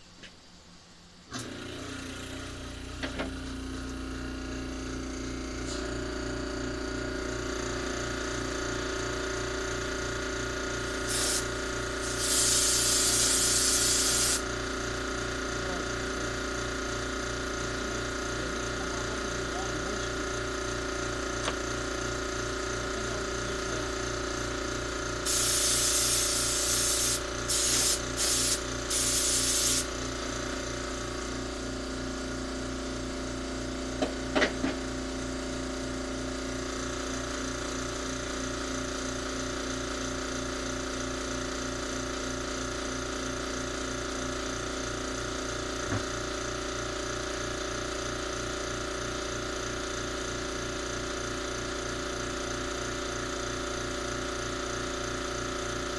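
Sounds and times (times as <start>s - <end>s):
compressed air blasts hissing: 10.8s - 14.4s, 25.2s - 29.9s.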